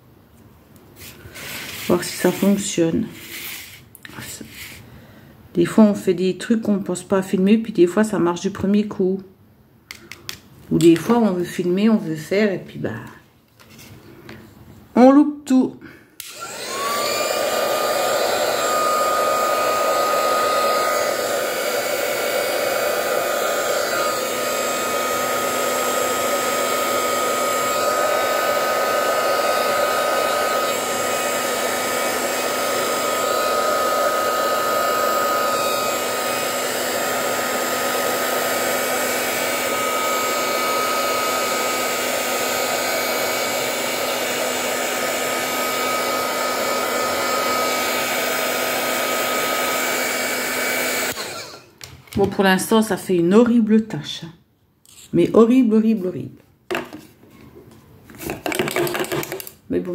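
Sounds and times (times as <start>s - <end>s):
heat gun blowing hot air: 1.0s - 3.9s, 16.2s - 51.7s.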